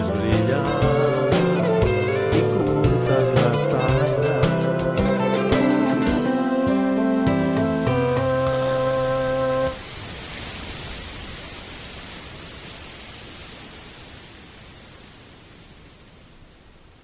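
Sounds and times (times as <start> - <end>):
held music chord: 0.0 - 9.8
steady hiss: 8.5 - 17.0.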